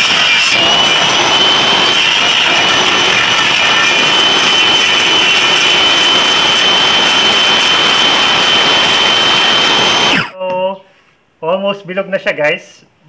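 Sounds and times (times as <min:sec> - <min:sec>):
table saw whining: 0:00.0 - 0:10.4.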